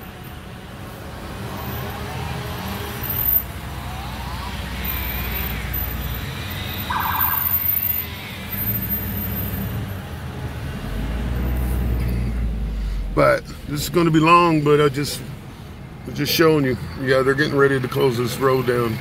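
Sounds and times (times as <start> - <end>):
car road noise: 0.0 - 19.0
distant siren wailing: 2.1 - 8.9.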